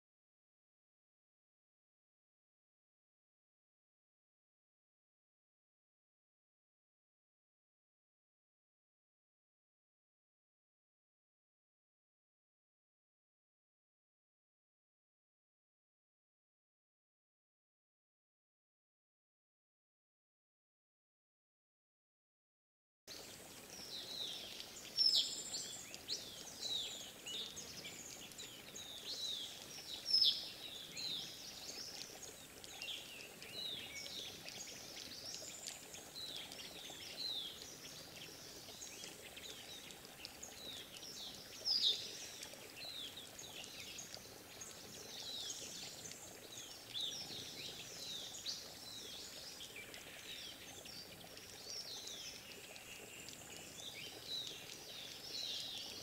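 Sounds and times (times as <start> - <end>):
songbirds chirping: 23.1 - 56.0.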